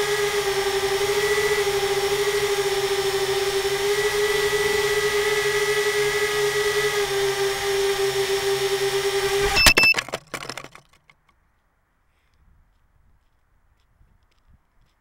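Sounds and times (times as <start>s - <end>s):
drone motors whining: 0.0s - 10.0s.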